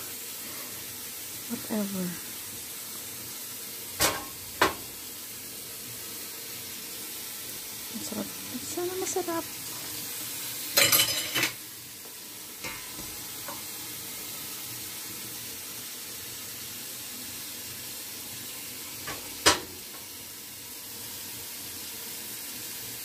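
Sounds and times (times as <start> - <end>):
steady hiss: 0.0 - 23.0
ribs and utensils clinking in pan: 4.0 - 5.0, 10.6 - 11.6, 12.6 - 13.8, 19.0 - 20.1.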